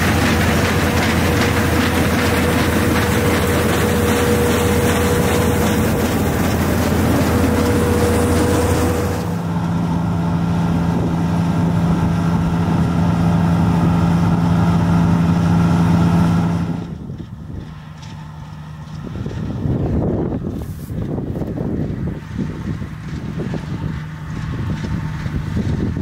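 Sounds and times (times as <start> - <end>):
combine harvester engine running: 0.0 - 26.0
wind on microphone: 19.0 - 26.0.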